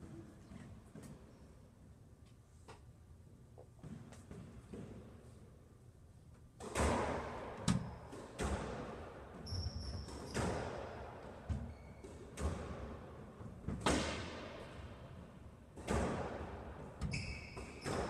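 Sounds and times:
squash ball hits: 6.6 - 9.1, 15.8 - 16.7, 17.5 - 18.0
shoes squeaking on court floor: 9.4 - 10.8, 11.5 - 12.5, 17.0 - 18.0.

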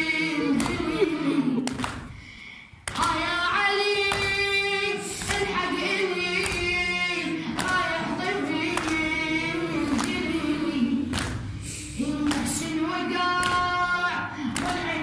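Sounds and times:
boy chanting into a microphone: 2.9 - 10.8, 11.8 - 15.0.

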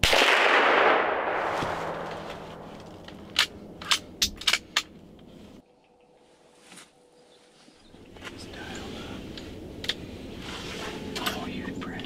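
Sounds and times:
rifle shot with echo: 0.0 - 2.7.

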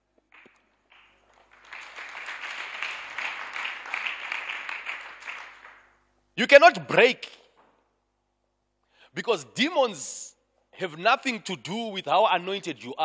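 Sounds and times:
congregation applauding: 0.3 - 6.0.

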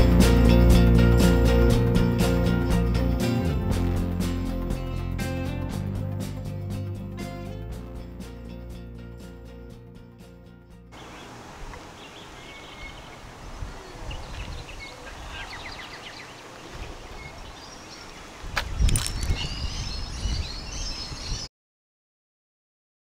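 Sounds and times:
birds chirping: 10.9 - 21.5
wind rumbling on microphone: 12.5 - 21.5.

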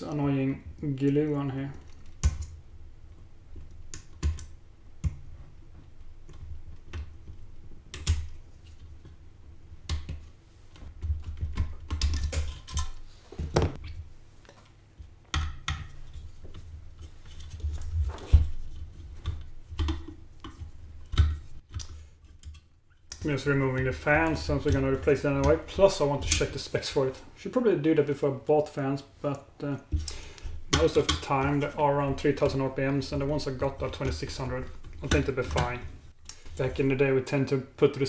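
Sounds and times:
wires rustling: 9.9 - 37.2.

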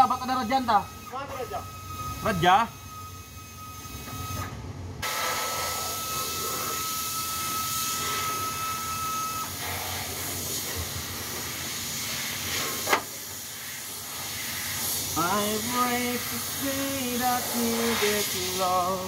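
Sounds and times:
steady hiss: 9.5 - 19.0.

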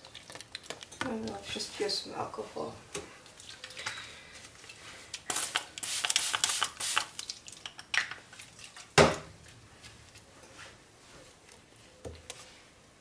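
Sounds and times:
spray bottle squirts: 5.3 - 7.2.

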